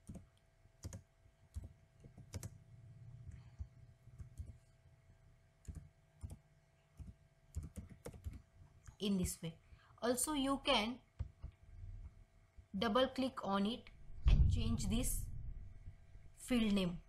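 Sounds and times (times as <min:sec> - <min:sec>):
keyboard typing clicks: 0:00.0 - 0:02.6, 0:05.6 - 0:06.4.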